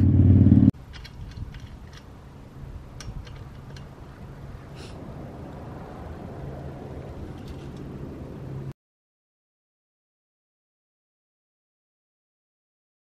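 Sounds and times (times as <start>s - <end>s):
steady low rumble: 3.8s - 8.7s.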